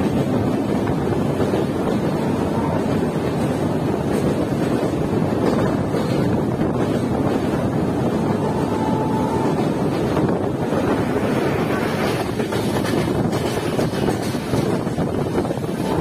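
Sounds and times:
train wheels rumbling on rails: 0.0s - 16.0s
wind buffeting microphone: 0.0s - 16.0s.

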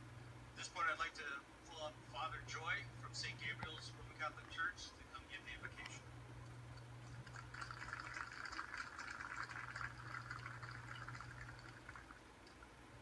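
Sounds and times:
steady low hum: 0.0s - 13.0s
crowd applause through tv speaker: 7.0s - 12.2s.

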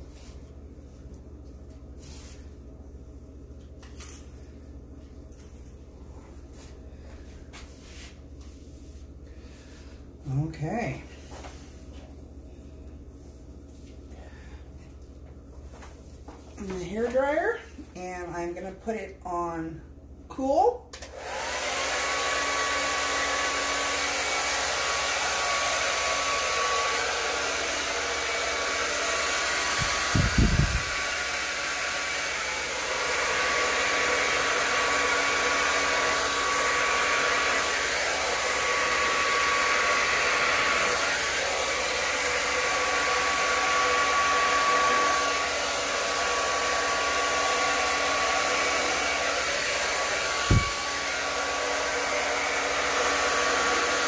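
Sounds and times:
hair dryer blowing air: 9.0s - 12.1s, 21.0s - 54.0s.

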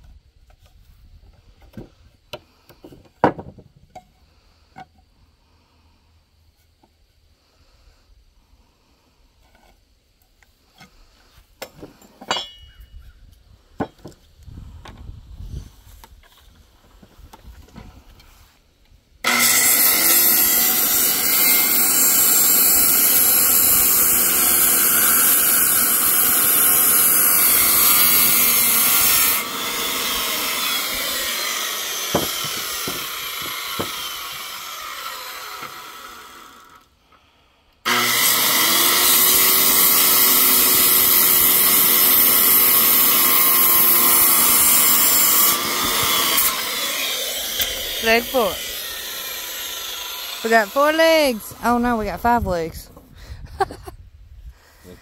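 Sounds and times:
circular saw cutting wood: 19.2s - 37.0s, 37.8s - 52.4s.

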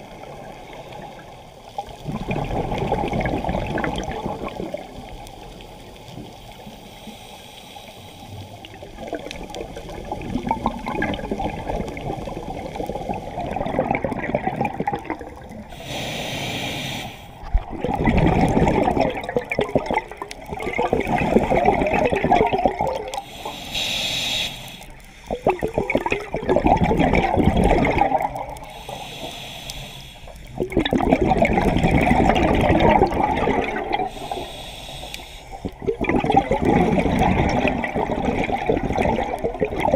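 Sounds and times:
underwater exhaust bubbling: 0.0s - 39.9s
regulator hiss on inhale: 6.3s - 8.6s, 15.7s - 17.5s, 23.2s - 25.7s, 28.6s - 30.6s, 34.0s - 35.8s.

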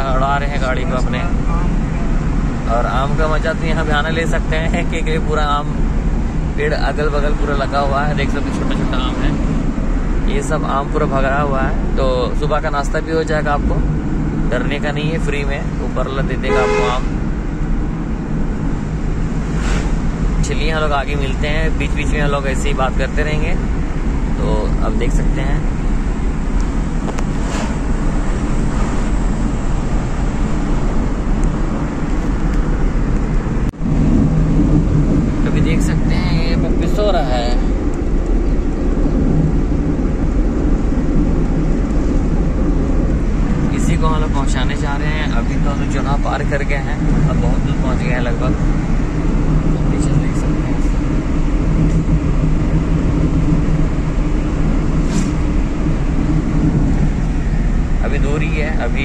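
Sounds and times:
car driving at speed: 0.0s - 59.0s
air rushing past window: 16.5s - 59.0s.

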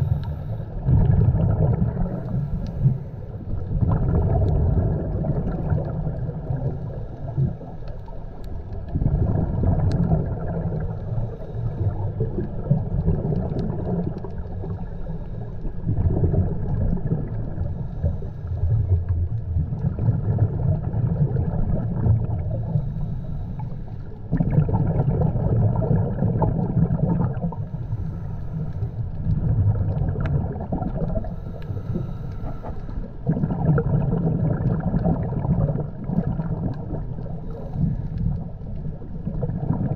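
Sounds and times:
underwater rumble and bubbles: 0.0s - 39.9s.

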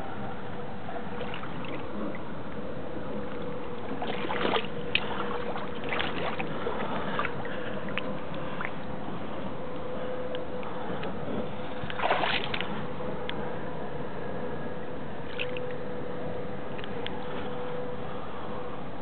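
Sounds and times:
faint steady hum: 0.0s - 19.0s
shallow water splashing: 1.1s - 9.4s, 10.8s - 13.0s, 15.2s - 15.8s.

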